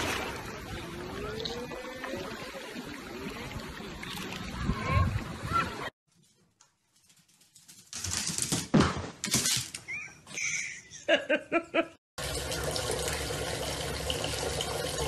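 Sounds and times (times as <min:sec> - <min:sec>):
water running from bathtub tap: 0:12.2 - 0:15.0.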